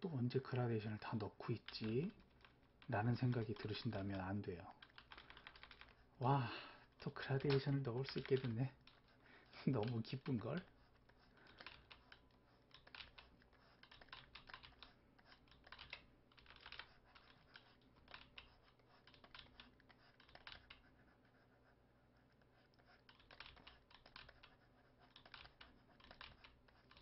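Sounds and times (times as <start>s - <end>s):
keyboard keys clicking: 1.5s - 6.0s, 7.2s - 9.0s, 11.5s - 20.9s, 23.1s - 27.0s.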